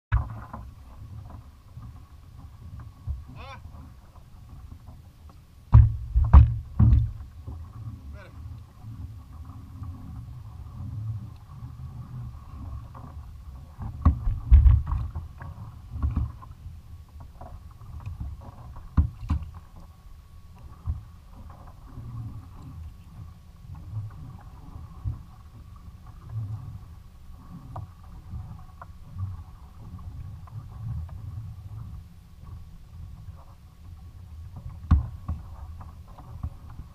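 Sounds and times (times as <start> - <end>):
water and wind rumble: 0.1 - 36.9
knocks on kayak hull: 5.7 - 7.2.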